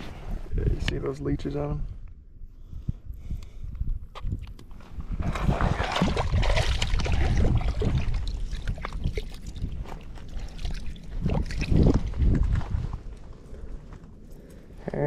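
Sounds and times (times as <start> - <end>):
shallow water splashing: 5.2 - 13.1.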